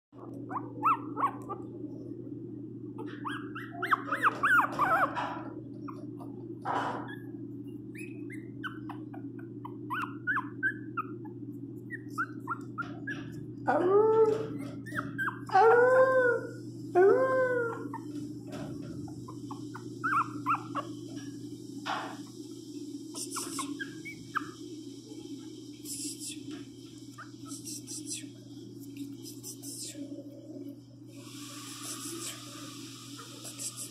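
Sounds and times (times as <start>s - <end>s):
puppy yelping: 0.2s - 1.7s, 3.0s - 6.0s, 7.9s - 16.5s, 19.2s - 20.9s, 23.3s - 24.6s
low hum: 0.2s - 33.9s.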